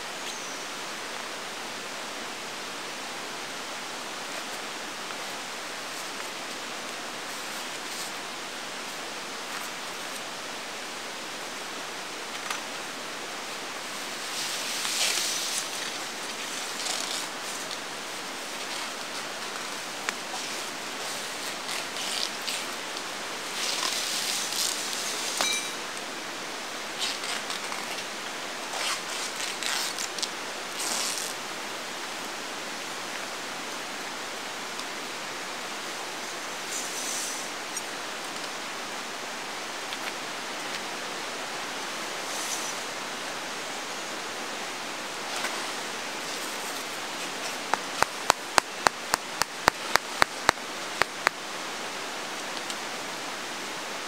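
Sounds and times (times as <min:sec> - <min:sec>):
river rushing: 0:00.0 - 0:54.0
rustling and scraping of tent stakes: 0:04.2 - 0:10.4, 0:13.8 - 0:26.0, 0:27.0 - 0:31.5, 0:36.3 - 0:38.6, 0:42.0 - 0:43.1, 0:45.1 - 0:51.4.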